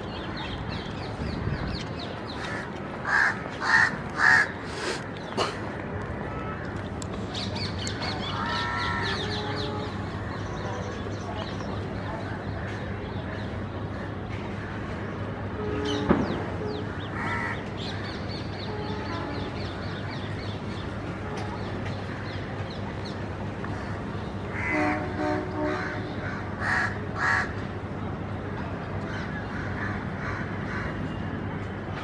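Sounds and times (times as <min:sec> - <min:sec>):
crows cawing: 0:02.4 - 0:04.6, 0:17.2 - 0:17.6, 0:25.9 - 0:27.6.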